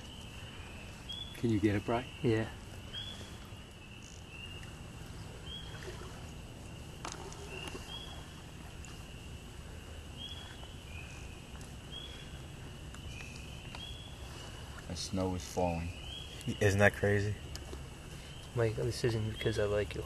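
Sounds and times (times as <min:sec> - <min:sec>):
low steady rumble: 0:00.0 - 0:20.0.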